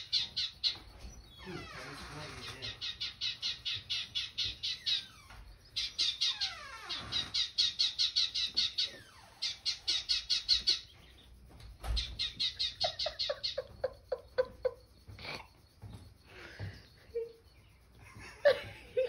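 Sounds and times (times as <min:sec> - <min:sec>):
lower short bird calls: 0:00.0 - 0:13.2
sparrows chirping: 0:00.0 - 0:19.0.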